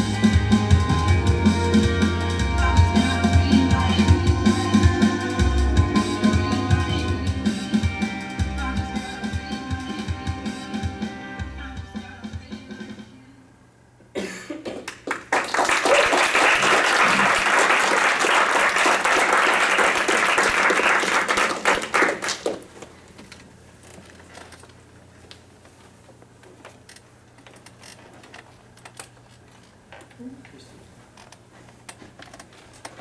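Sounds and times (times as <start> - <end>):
audience applauding: 14.9 - 22.8.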